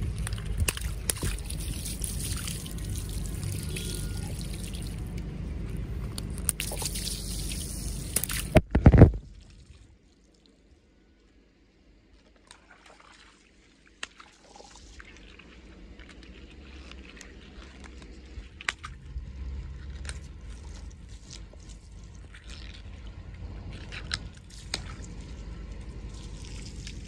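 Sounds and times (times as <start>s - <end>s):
water sloshing and dripping: 0.0s - 8.7s, 12.1s - 27.0s
wet rubber squishing: 0.0s - 8.7s, 14.0s - 27.0s
low rumble: 0.0s - 9.4s, 15.6s - 27.0s.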